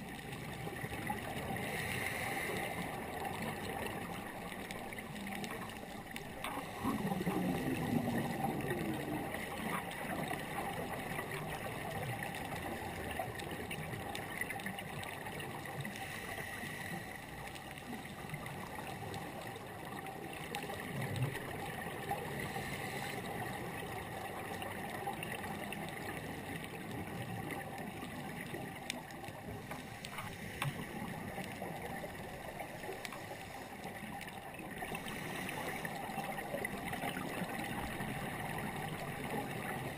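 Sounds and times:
underwater hiss and hum: 0:00.0 - 0:39.9
gurgling air bubbles: 0:02.9 - 0:14.1.

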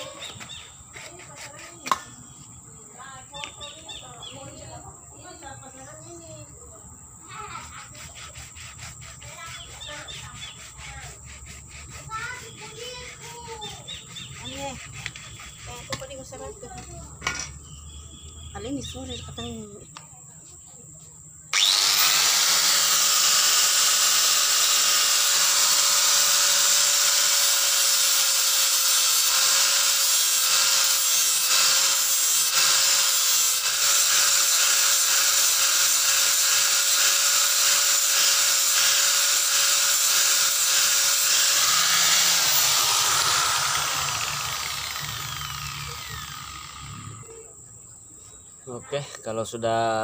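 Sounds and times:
angle grinder grinding plastic pipe: 0:07.6 - 0:16.4, 0:21.6 - 0:47.3
grinder winding down: 0:21.5 - 0:47.5.

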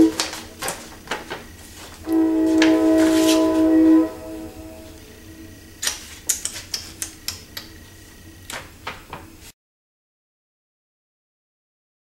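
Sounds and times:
distant train horn: 0:00.0 - 0:00.3, 0:02.0 - 0:05.7
sharp irregular clicks and knocks: 0:05.8 - 0:07.8.

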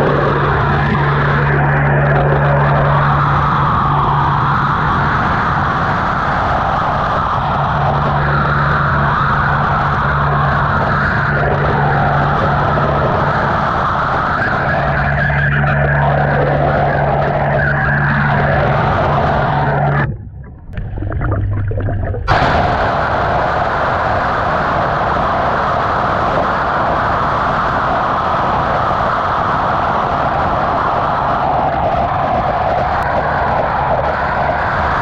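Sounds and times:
low hum: 0:00.0 - 0:29.0
underwater jet rush and crackle: 0:00.0 - 0:35.0.

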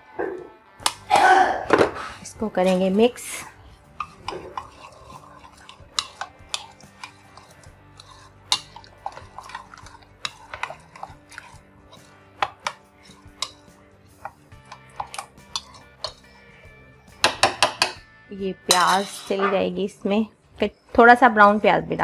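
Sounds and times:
faint background music: 0:00.0 - 0:22.0
fingers mixing in plastic bowl: 0:02.6 - 0:13.6, 0:14.2 - 0:16.3.

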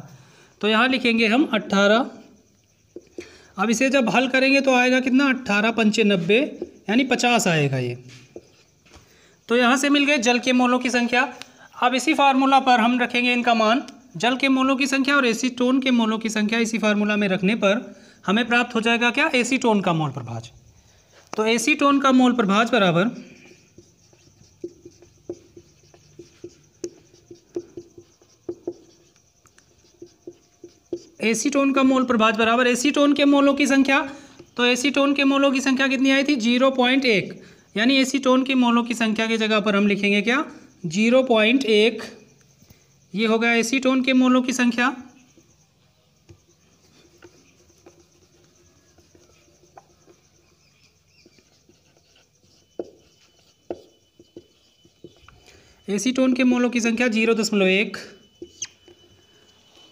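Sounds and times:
marker writing on whiteboard: 0:05.9 - 0:07.3, 0:08.1 - 0:09.0, 0:21.1 - 0:35.8, 0:46.2 - 0:59.2.

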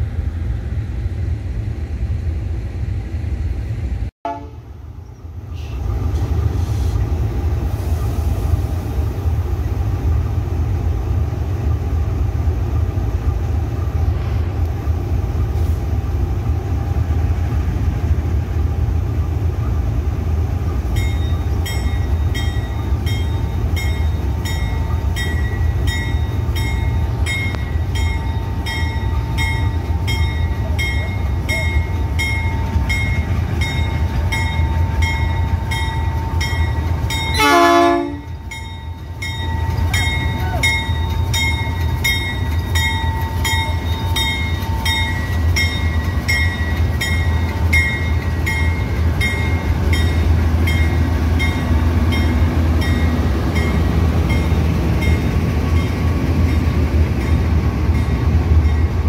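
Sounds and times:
diesel locomotive engine rumble: 0:00.0 - 0:59.0.

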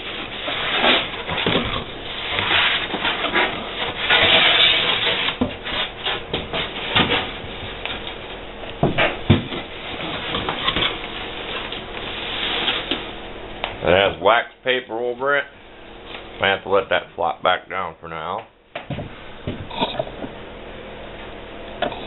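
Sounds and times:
cardboard rustling and scraping: 0:00.0 - 0:08.2, 0:09.3 - 0:13.2.

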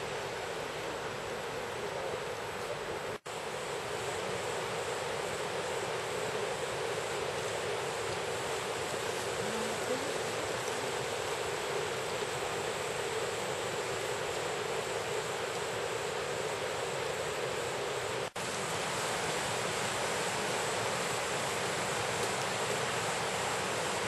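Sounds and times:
river rushing over rocks: 0:05.9 - 0:24.0.

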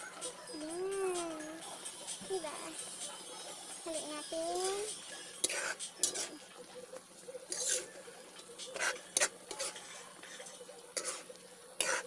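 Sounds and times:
spoon scraping a pan: 0:04.6 - 0:12.0.

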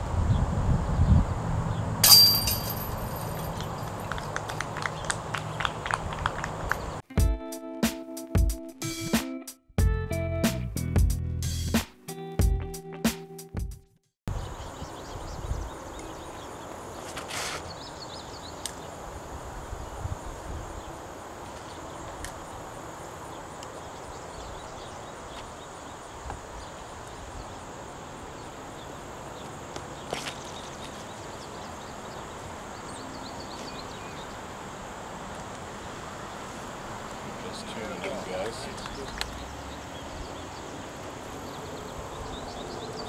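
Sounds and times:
high insect drone: 0:14.3 - 0:43.0.

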